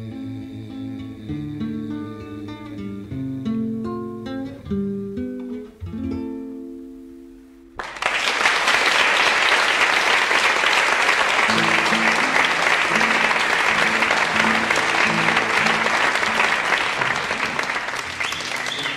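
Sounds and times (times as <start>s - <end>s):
audience applause: 7.8s - 18.9s.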